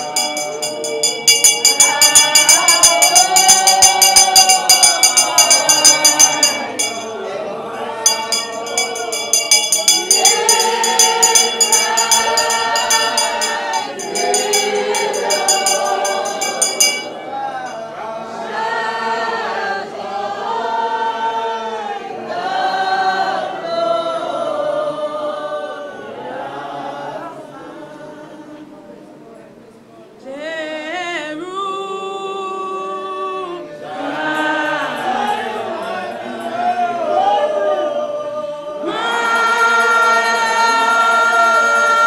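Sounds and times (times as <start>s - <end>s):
handbell ringing rapidly: 0.0s - 7.2s, 8.0s - 17.1s
congregation singing: 0.0s - 42.0s.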